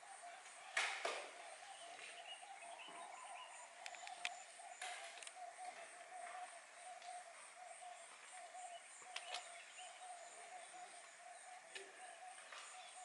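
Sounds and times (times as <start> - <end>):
sharp clicks: 3.8 - 5.4.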